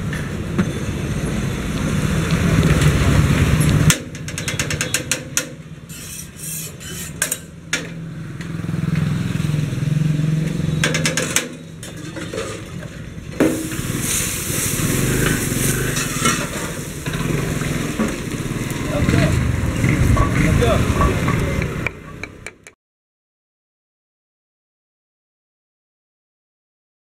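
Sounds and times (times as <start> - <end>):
low engine hum: 7.2 - 22.6.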